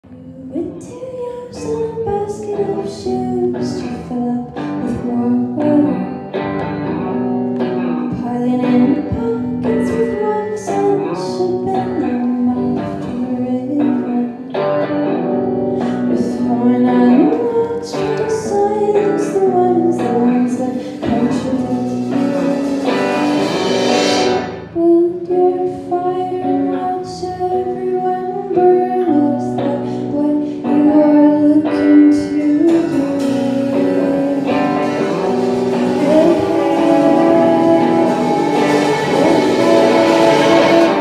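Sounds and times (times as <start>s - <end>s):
woman singing: 0.0s - 23.6s, 24.6s - 41.0s
electric guitar: 0.0s - 41.0s
steady drum beat: 20.8s - 24.6s, 32.7s - 41.0s.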